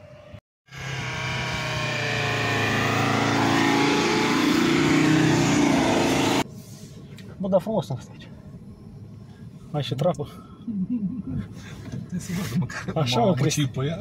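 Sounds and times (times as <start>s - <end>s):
car engine revving hard: 0.7s - 6.4s.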